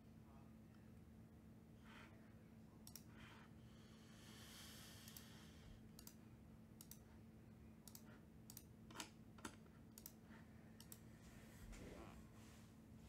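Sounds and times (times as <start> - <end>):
faint steady hum: 0.0 - 13.0
computer mouse and keyboard clicks: 7.8 - 11.0.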